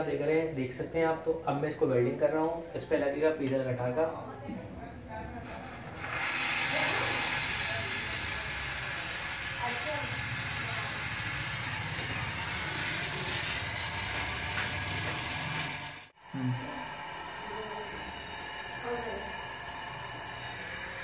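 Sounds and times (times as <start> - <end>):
torch flame hissing: 5.8 - 21.0.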